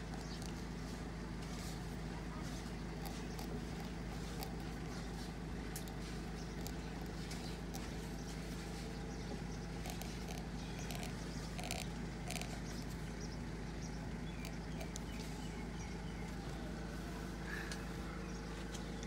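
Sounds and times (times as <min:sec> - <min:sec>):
steady low hum: 0:00.0 - 0:19.0
stylus scratching lacquer: 0:02.5 - 0:09.0, 0:09.7 - 0:13.0, 0:14.4 - 0:15.4.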